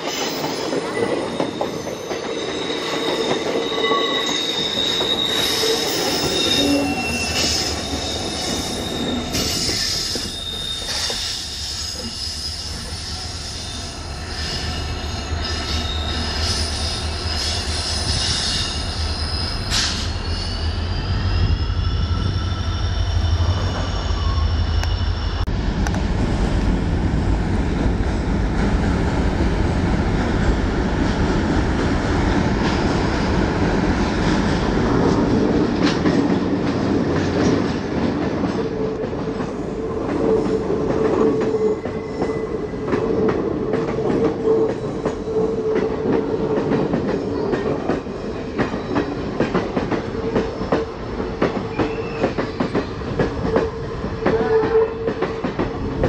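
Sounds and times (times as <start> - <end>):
train wheels squealing: 0.0 - 25.4, 41.3 - 43.0, 48.6 - 49.5, 51.6 - 55.2
train rumble and wheel noise: 0.0 - 56.0
diesel locomotive engine drone: 8.2 - 35.9.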